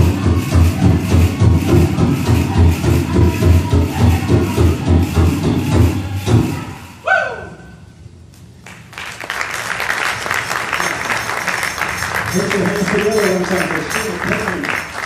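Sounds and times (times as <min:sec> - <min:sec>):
drum-beat music: 0:00.0 - 0:06.8
audience applauding: 0:08.6 - 0:15.0.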